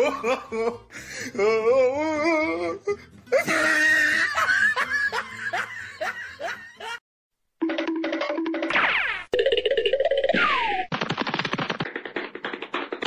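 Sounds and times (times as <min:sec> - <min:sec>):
person laughing: 0:00.0 - 0:02.7, 0:03.3 - 0:07.0
background music: 0:00.0 - 0:07.0.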